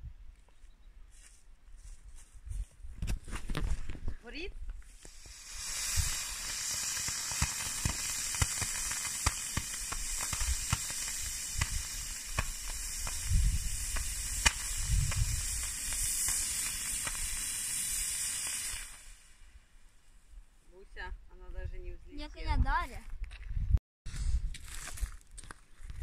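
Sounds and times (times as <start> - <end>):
sharp crackles and pops: 3.0 - 19.4
rocket motor hissing: 4.9 - 19.4.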